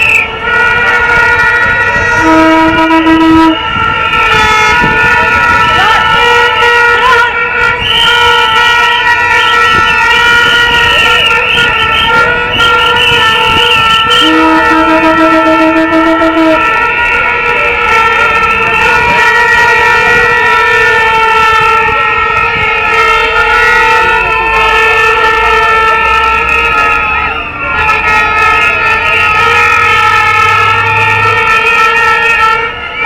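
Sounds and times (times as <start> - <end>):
plastic horns droning: 0.0 - 33.0.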